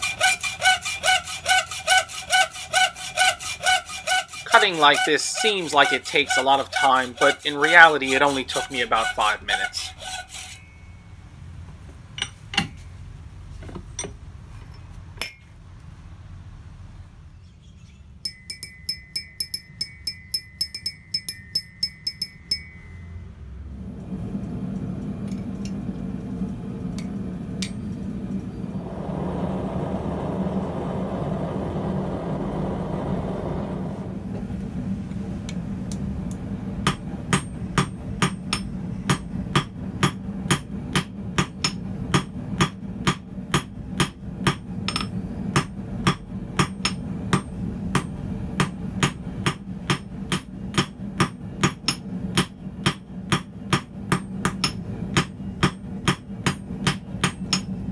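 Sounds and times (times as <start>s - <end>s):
quick metallic ringing taps: 18.2s - 23.1s
steady low hum: 18.3s - 57.9s
rushing noise: 26.0s - 36.7s.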